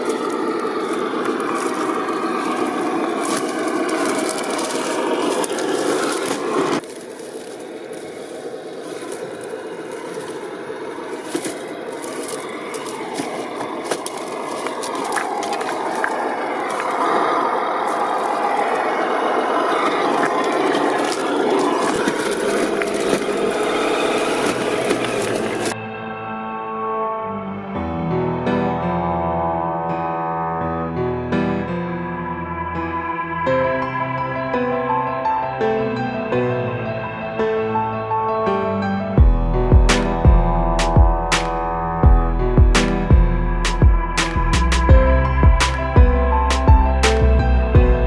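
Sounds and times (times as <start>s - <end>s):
tyres crunching over rocks: 0.0s - 25.8s.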